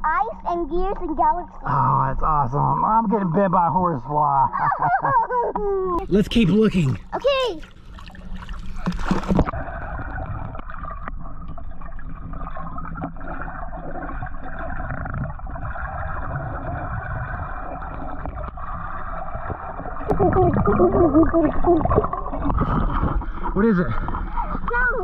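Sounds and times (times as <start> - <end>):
underwater rumble and water noise: 0.0 - 25.0
underwater bubbles: 6.0 - 25.0
muffled warbling voice underwater: 20.1 - 22.9.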